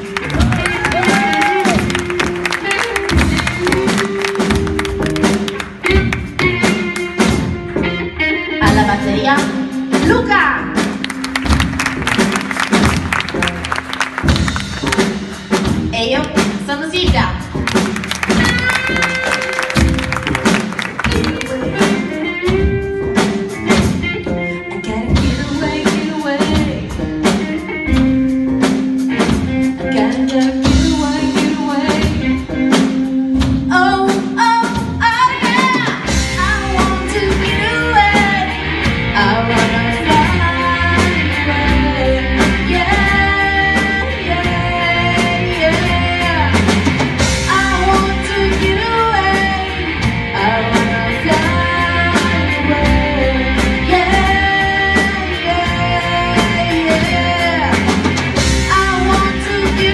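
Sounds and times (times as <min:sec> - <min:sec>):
bass guitar: 0:00.0 - 0:59.9
live rock band playing: 0:00.0 - 0:59.9
woman singing: 0:21.1 - 0:22.6, 0:24.5 - 0:27.7, 0:29.8 - 0:32.8, 0:33.7 - 0:46.8, 0:47.4 - 0:58.0, 0:58.6 - 0:59.9.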